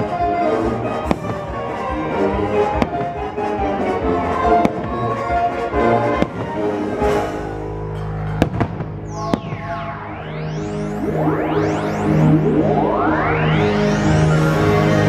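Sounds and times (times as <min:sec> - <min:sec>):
music: 0:00.0 - 0:15.0
fireworks bangs: 0:00.8 - 0:07.5, 0:08.3 - 0:10.2.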